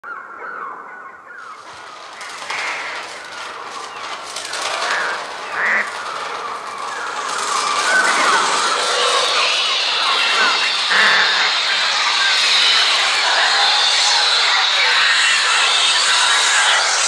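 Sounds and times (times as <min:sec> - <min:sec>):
electronic wing flutter: 0:01.4 - 0:17.0
harsh squawks: 0:01.5 - 0:17.0
electronic bird cries: 0:07.8 - 0:16.9.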